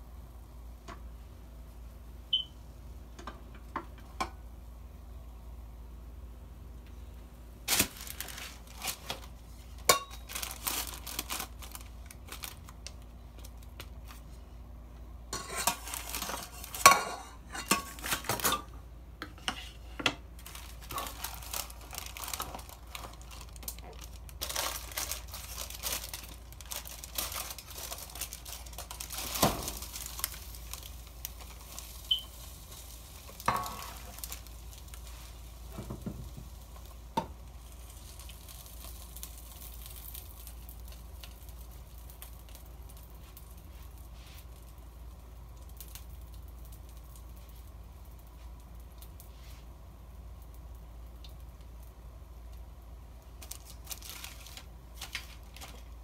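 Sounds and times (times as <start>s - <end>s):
paper and plastic wrap crinkling: 7.7s - 14.4s, 15.5s - 18.7s, 20.3s - 44.8s, 53.2s - 56.0s.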